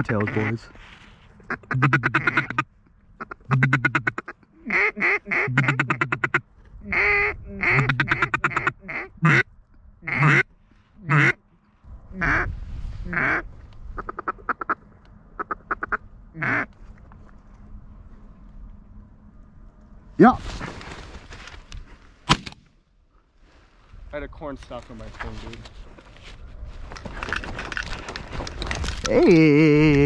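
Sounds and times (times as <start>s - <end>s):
duck call quacks and chuckles: 1.5s - 2.6s, 3.2s - 9.4s, 10.0s - 10.4s.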